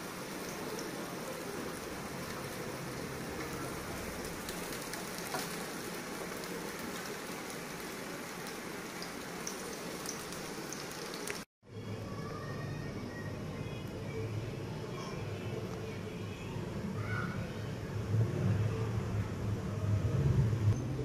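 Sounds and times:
food sizzling in hot oil: 0:00.0 - 0:11.5.

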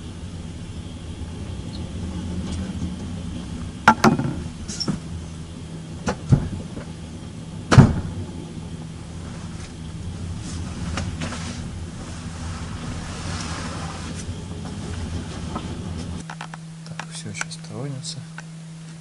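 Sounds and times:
train compartment hum: 0:00.0 - 0:19.0
sharp knocks and bangs: 0:03.8 - 0:05.0, 0:07.7 - 0:08.3.

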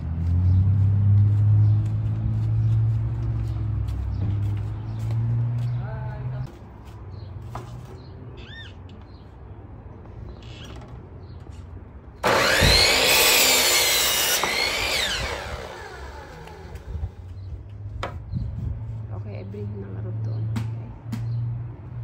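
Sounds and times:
miter saw cutting wood: 0:12.2 - 0:17.1
saw blade spinning down whine: 0:12.2 - 0:17.2.

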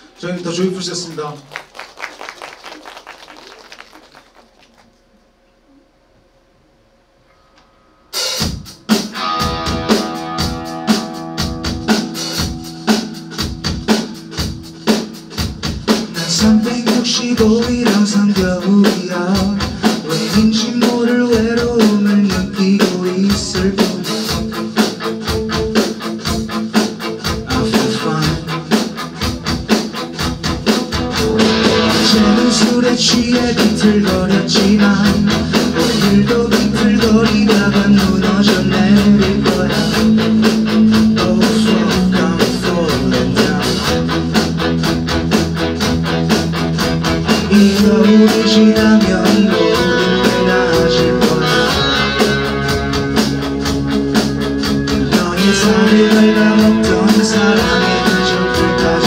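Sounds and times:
live rock band playing: 0:08.1 - 0:59.0
man singing: 0:16.0 - 0:24.4, 0:27.4 - 0:28.8, 0:31.4 - 0:44.2, 0:47.3 - 0:52.3, 0:54.9 - 0:59.0.

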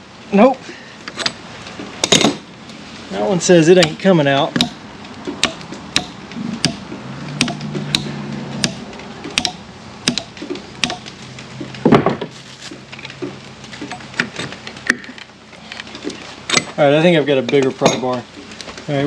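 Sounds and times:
hammer knocking on metal spike: 0:04.6 - 0:04.8, 0:05.4 - 0:06.8, 0:07.4 - 0:11.0
pry bar knocks: 0:04.6 - 0:04.8, 0:07.4 - 0:11.0
heavy clunk: 0:11.6 - 0:12.4.

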